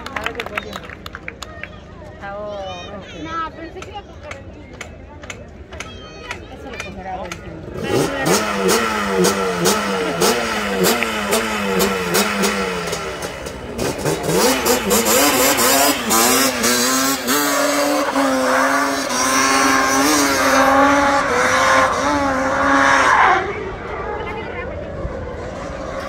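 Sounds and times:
quad bike engine revving: 7.6 - 26.0.

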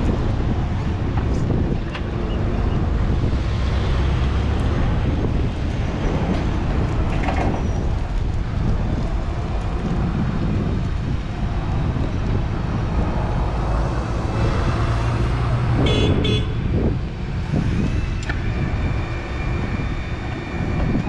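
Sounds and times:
horn toots: 15.8 - 16.7.

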